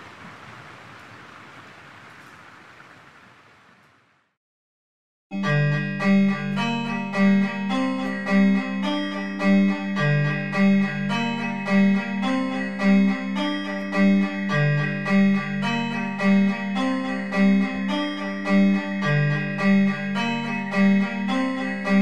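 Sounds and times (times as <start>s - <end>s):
dungeon synth music: 5.4s - 22.0s.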